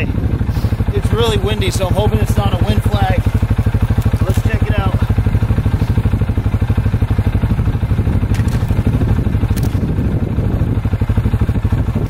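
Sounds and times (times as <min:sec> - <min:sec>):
wind buffeting microphone: 0:00.0 - 0:12.0
sharp clicks: 0:08.2 - 0:09.9.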